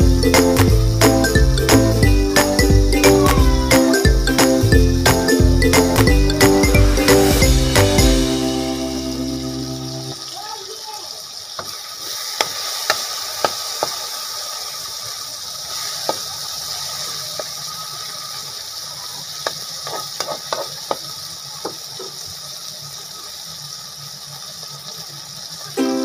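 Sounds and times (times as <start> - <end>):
food sizzling in a wok: 0.0 - 26.0.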